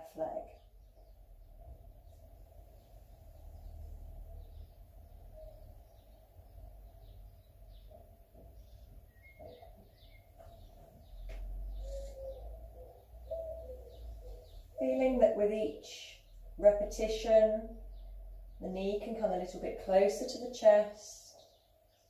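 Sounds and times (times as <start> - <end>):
faint bird chirps: 0.4 - 15.2.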